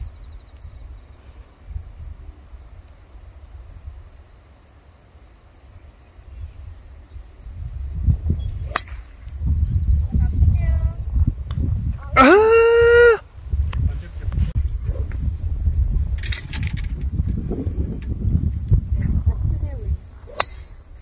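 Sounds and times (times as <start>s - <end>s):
wind rumbling on microphone: 0.0s - 4.4s, 6.1s - 21.0s
golf club striking ball: 8.7s - 9.2s, 20.3s - 20.8s.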